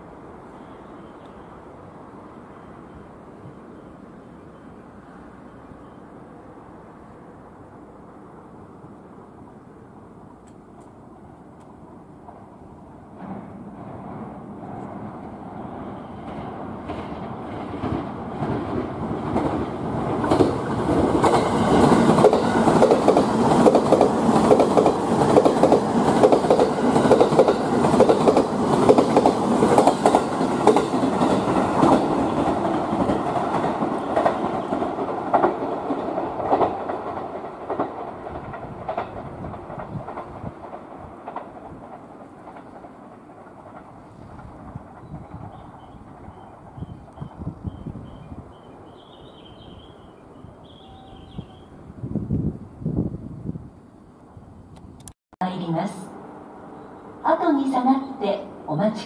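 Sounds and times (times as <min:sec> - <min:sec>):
electric train passing: 0:00.0 - 0:59.0
wheels clicking over rail joints: 0:16.3 - 0:46.4.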